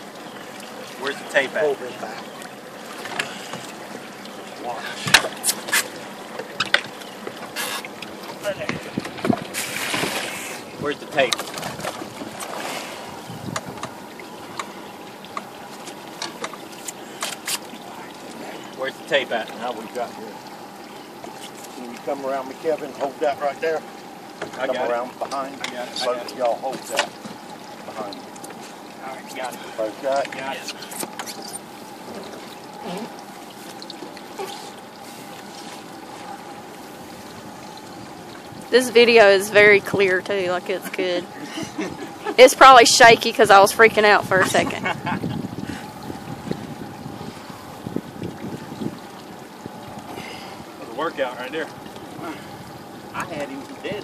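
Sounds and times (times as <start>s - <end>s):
water splashing beside boat: 0.0s - 54.0s.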